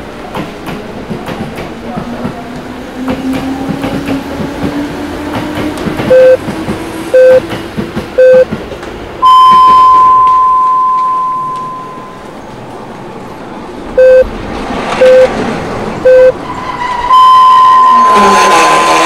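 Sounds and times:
short time signal pips: 9.2 - 12.2, 14.0 - 14.2, 15.0 - 15.3, 16.1 - 16.4, 17.1 - 19.0
long high tone: 9.2 - 12.4, 17.1 - 19.0
electric train passing with whine: 10.2 - 19.0.

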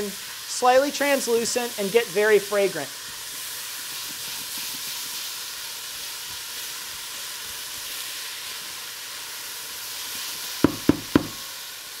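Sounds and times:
vegetables sizzling in a pot: 0.0 - 12.0.

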